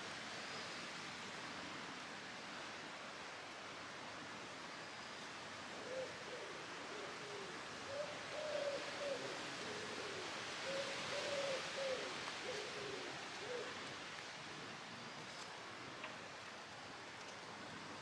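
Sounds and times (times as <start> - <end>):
steady outdoor hiss: 0.0 - 18.0
bird low hooting call: 5.8 - 13.8.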